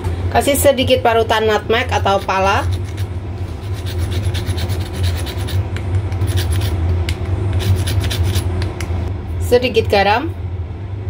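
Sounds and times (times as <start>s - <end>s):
steady low hum: 0.0s - 11.0s
nutmeg scraping on hand grater: 2.1s - 5.6s, 6.2s - 6.8s, 7.6s - 8.5s.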